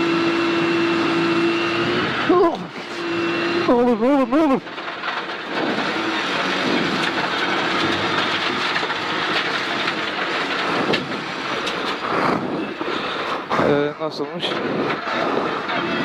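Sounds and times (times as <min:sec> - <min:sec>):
car engine and tyre noise: 0:00.0 - 0:16.0
gravel rumble: 0:01.9 - 0:16.0
stones striking car underside: 0:04.6 - 0:13.5.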